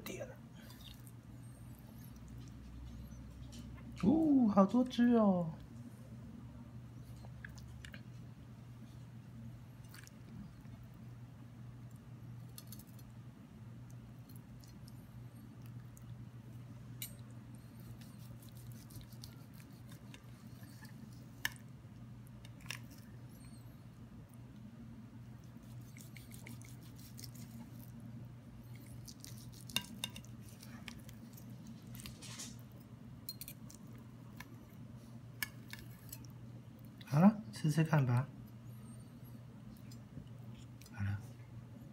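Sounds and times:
low steady hum: 0.0 - 41.9
knife and fork slicing steak: 17.0 - 21.1, 25.6 - 27.9, 28.7 - 32.6.

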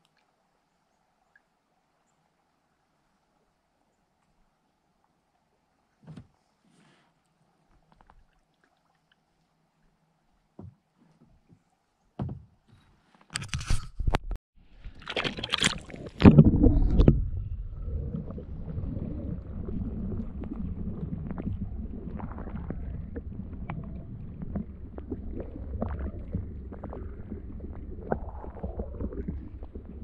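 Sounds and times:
faint underwater clicks: 0.0 - 0.4, 7.1 - 11.8
water splashing and sloshing: 2.4 - 12.8, 14.6 - 30.0
muffled underwater rumble: 14.2 - 30.0.

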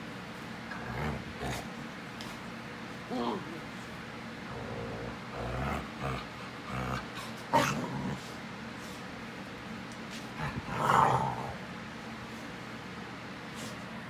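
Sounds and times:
dogs making low vocal sounds: 0.7 - 1.8, 4.4 - 8.4, 10.2 - 11.7.

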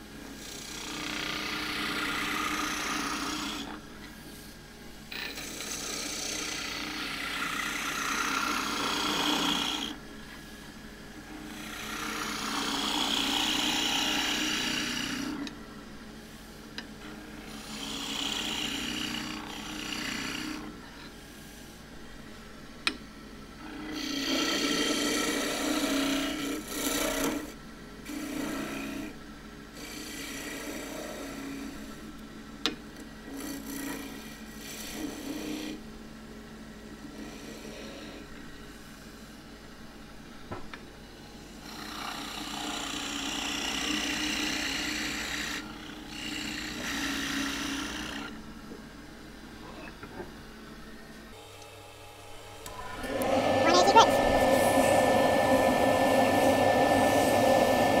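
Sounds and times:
chisel cutting wood on a lathe: 0.4 - 3.8, 5.2 - 10.0, 11.3 - 15.6, 17.0 - 20.8, 23.6 - 29.2, 29.8 - 32.0, 33.3 - 35.8, 37.1 - 38.4, 41.6 - 48.4
lathe humming: 0.4 - 3.8, 5.1 - 10.0, 11.2 - 15.6, 17.0 - 21.0, 23.6 - 29.1, 29.8 - 32.0, 37.1 - 38.5, 41.7 - 48.3, 51.4 - 58.0.

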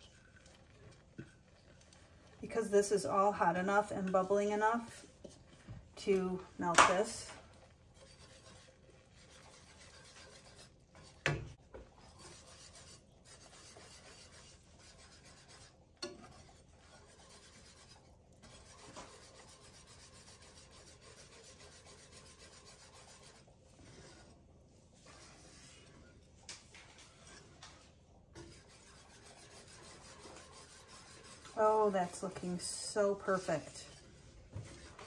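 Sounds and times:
whisk scraping and swishing: 0.0 - 35.0.

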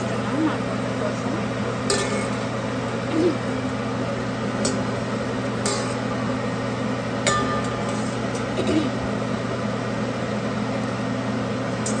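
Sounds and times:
oil bubbling while deep-frying: 0.0 - 12.0
steady mechanical hum: 0.0 - 12.0
spoon clinking on metal pot: 1.9 - 2.4, 5.6 - 6.0.

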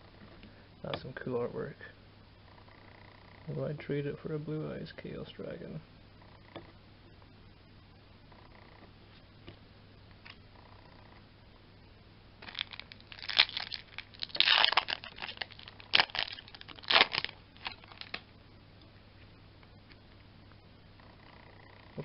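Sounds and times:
foil wrapper tearing and crinkling: 12.4 - 18.2.

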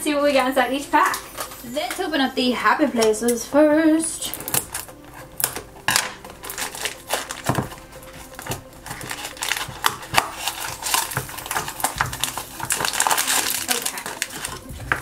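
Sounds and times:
scissors snipping cardboard: 4.4 - 15.0.

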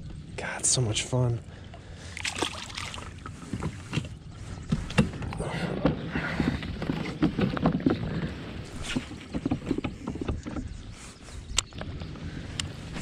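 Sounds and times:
knocks and clicks of gear: 3.2 - 13.0.

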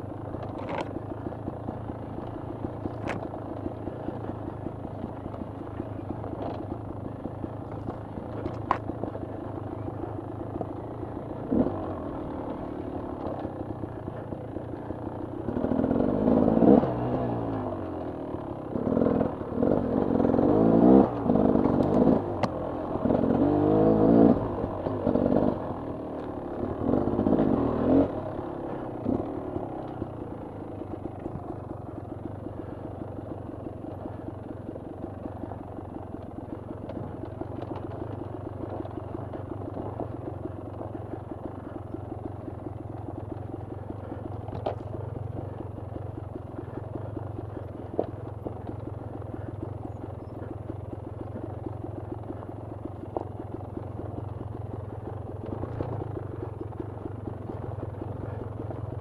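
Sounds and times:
dirt bike engine revving: 10.8 - 14.3, 15.4 - 17.8, 18.7 - 31.7.

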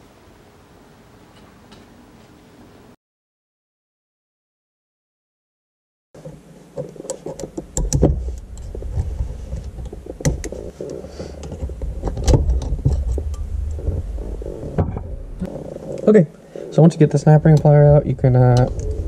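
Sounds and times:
low hum: 7.0 - 19.0.

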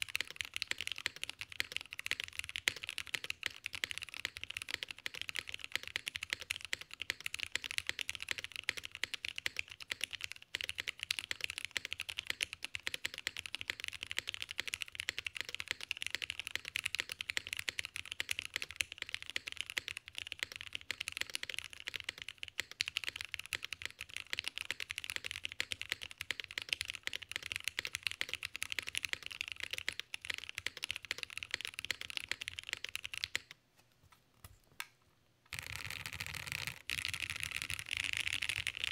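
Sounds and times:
mechanical keyboard typing: 0.0 - 33.6, 35.5 - 38.9.

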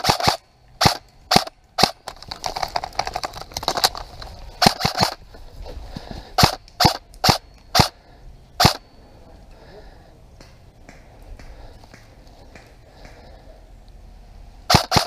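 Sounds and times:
airsoft rifle shots: 0.0 - 2.1, 4.6 - 5.2, 6.4 - 8.0, 8.6 - 8.8, 14.7 - 15.0.

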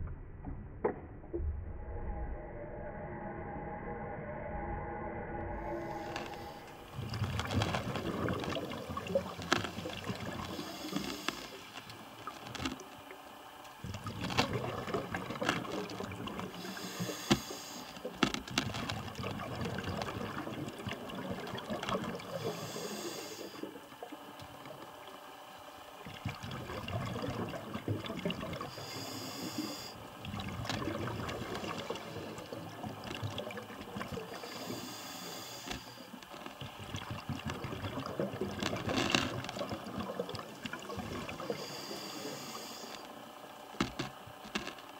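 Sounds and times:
diver regulator hiss: 5.6 - 12.7, 13.7 - 18.4, 22.2 - 23.8, 28.6 - 30.2, 34.0 - 36.5, 41.1 - 44.8
exhaled bubbles rushing: 5.6 - 17.2, 18.0 - 22.8, 25.9 - 28.8, 30.0 - 34.6, 36.5 - 41.8.

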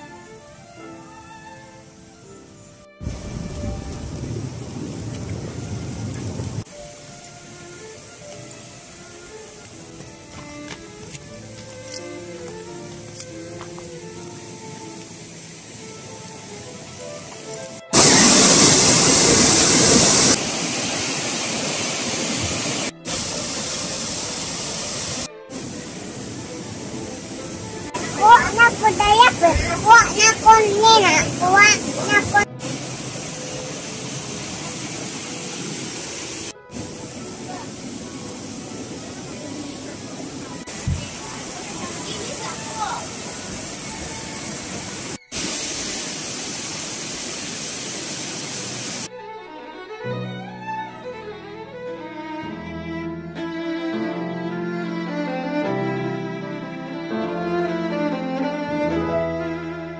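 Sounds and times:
river water rushing over rocks: 10.8 - 49.1.

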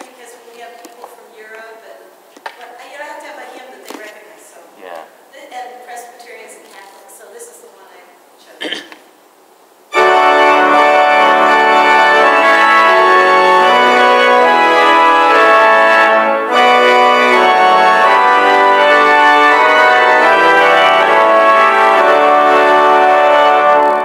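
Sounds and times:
organ playing held chords: 9.9 - 24.0.

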